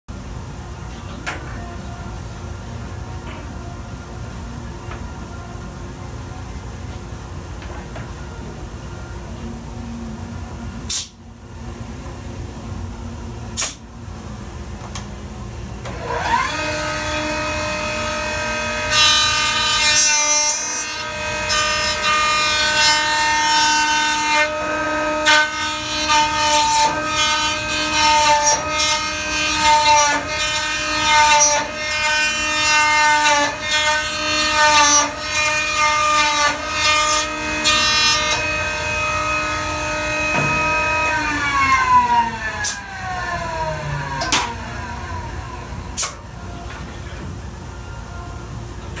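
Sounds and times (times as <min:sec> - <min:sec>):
cutter motor whining: 0:15.9 - 0:18.9.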